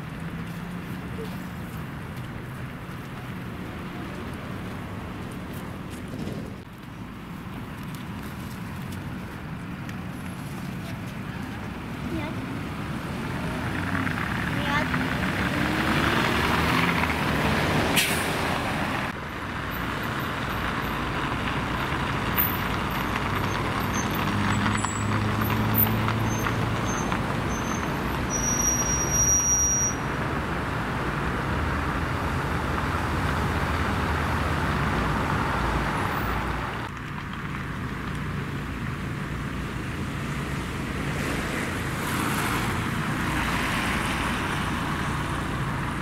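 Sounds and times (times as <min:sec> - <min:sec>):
passing vehicles: 0:00.0 - 0:46.0
high thin squeal: 0:27.5 - 0:30.0.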